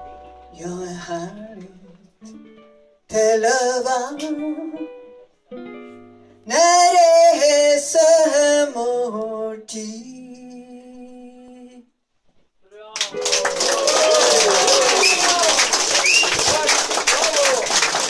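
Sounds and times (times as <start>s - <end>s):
ukulele ensemble playing: 13.0s - 13.9s.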